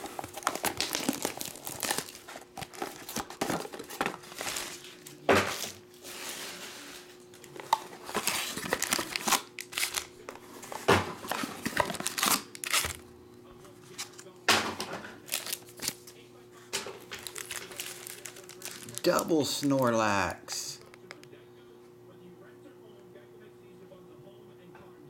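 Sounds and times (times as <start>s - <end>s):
plastic wrap crinkling and tearing: 0.0s - 10.1s, 11.4s - 13.0s, 15.2s - 16.0s, 17.0s - 20.0s.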